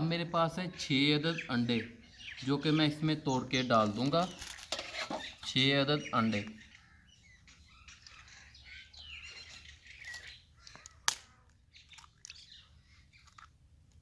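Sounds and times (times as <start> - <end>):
birds calling: 0.0 - 13.6
egg cracking against metal bowl: 10.1 - 12.4.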